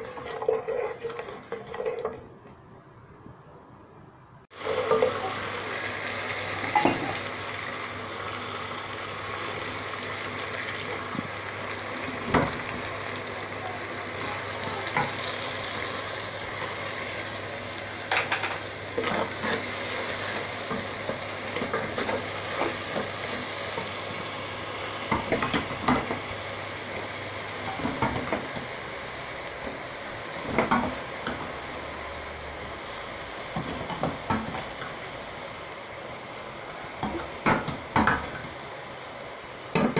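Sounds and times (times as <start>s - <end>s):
sizzling in a pot: 0.0s - 2.3s, 4.5s - 39.9s.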